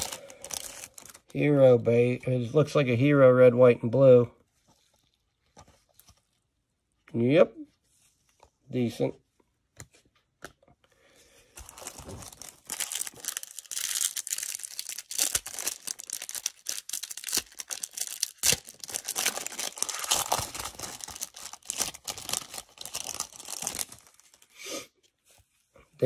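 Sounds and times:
cellophane wrapper crinkling and tearing: 0.0s - 1.6s, 11.6s - 24.6s.

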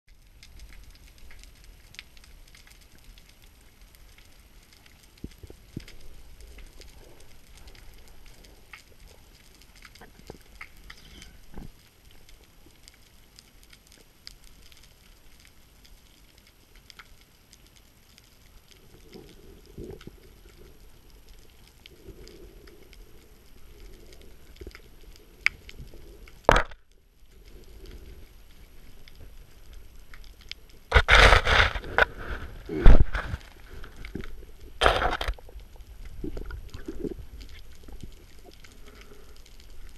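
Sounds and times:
faint underwater crackle: 0.1s - 39.9s
clicks and knocks: 26.5s - 26.8s.

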